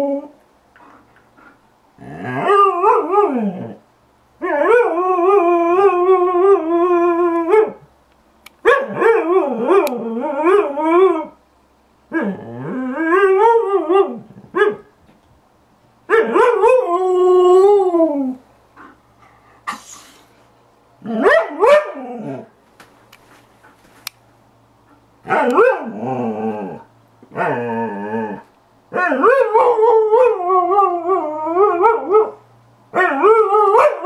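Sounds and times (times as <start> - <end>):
husky howl-whining: 0.0 - 0.4, 2.0 - 3.8, 4.4 - 7.8, 8.9 - 11.4, 12.1 - 14.4, 16.1 - 18.4, 25.3 - 34.0.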